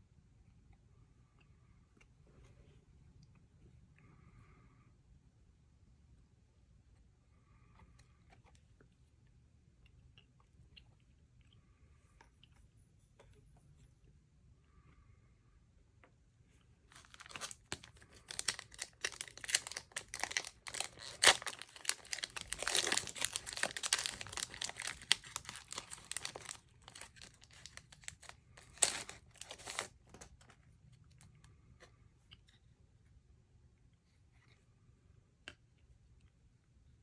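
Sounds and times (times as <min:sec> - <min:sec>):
faint handling sounds: 0:15.9 - 0:33.2
foil wrapper tearing and crinkling: 0:16.9 - 0:30.3.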